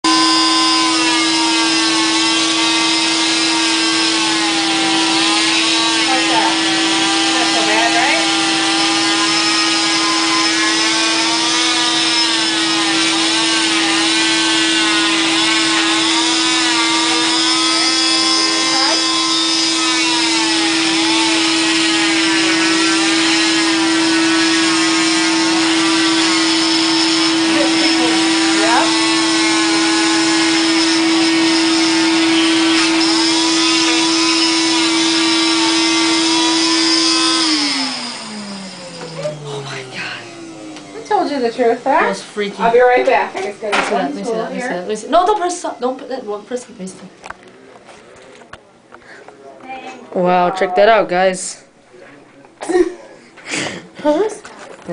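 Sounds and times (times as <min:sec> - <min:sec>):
cast saw motor hum and whine: 0:00.0 - 0:46.7.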